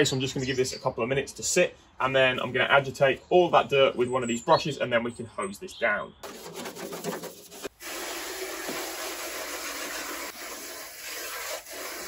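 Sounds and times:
hose spraying water: 7.0 - 12.0.

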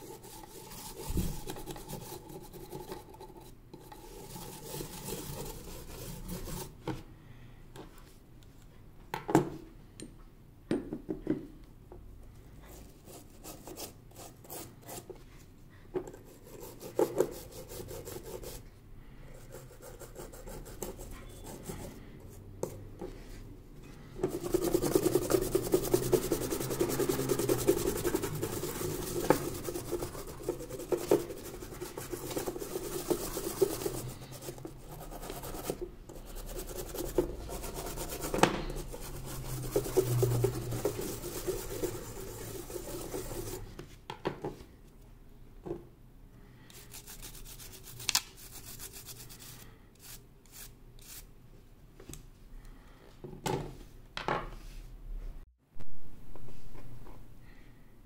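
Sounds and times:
toothbrush scrubbing circuit board: 24.3 - 43.7.

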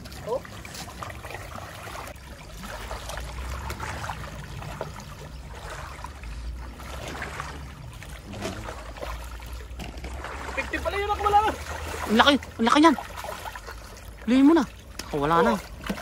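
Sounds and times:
small splashes and clicks: 0.0 - 16.0
stream trickling over stones: 0.0 - 16.0.

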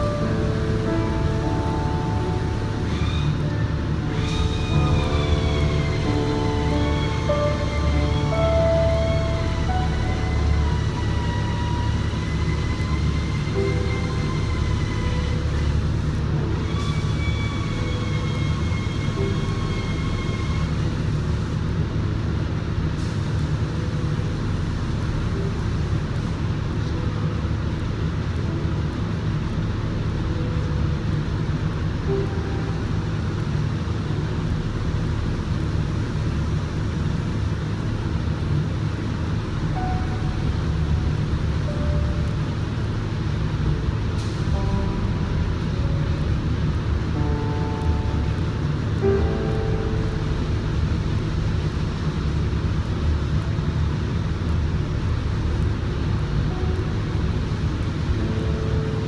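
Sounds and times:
spray booth machine drone: 0.0 - 59.0.

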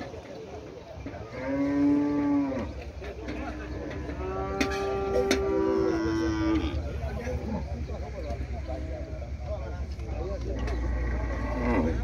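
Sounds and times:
cattle mooing: 3.5 - 7.6, 10.6 - 12.0.

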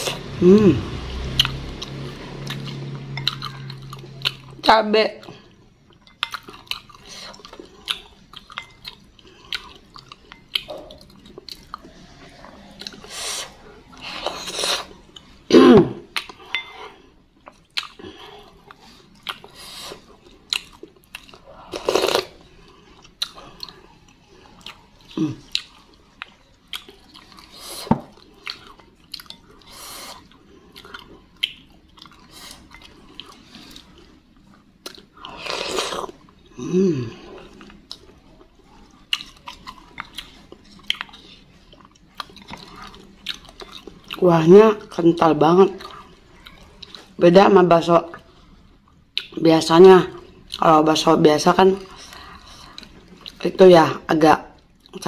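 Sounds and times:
wet chewing: 1.2 - 15.4, 16.0 - 36.6, 37.2 - 47.2, 48.1 - 49.4, 51.7 - 53.5
slurping broth: 11.8 - 15.0, 21.7 - 23.0.

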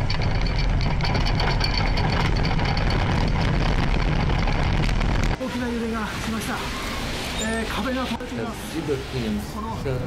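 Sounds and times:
rattling and clattering: 0.0 - 5.4
deep earthquake rumble: 0.0 - 5.5.

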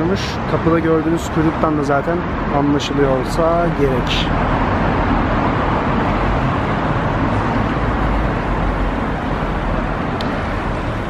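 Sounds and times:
cars driving past: 0.0 - 11.0.

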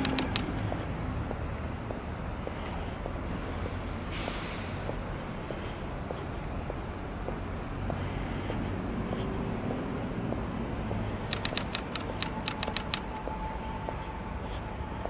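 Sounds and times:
sharp clicks: 0.0 - 0.6, 11.3 - 13.2
traffic rumble: 0.0 - 15.0.

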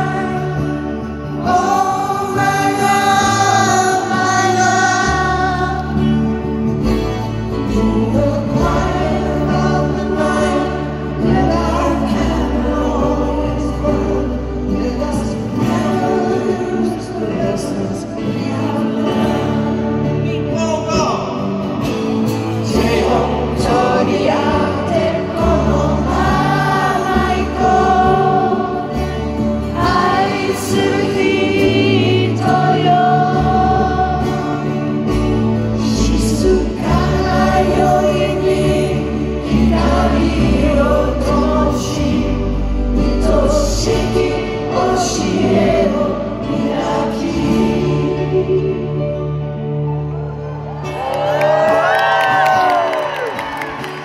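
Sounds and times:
person singing: 0.0 - 21.4, 22.3 - 50.0
acoustic guitar: 0.0 - 54.0
crowd singing along: 0.0 - 54.0.

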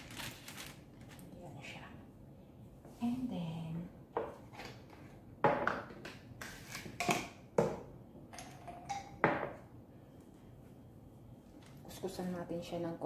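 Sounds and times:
kitchen items knocking and clattering: 4.2 - 9.7.

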